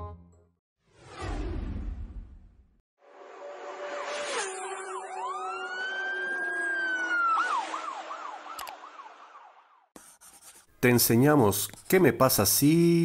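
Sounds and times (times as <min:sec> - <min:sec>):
emergency vehicle siren: 0:03.0 - 0:10.0.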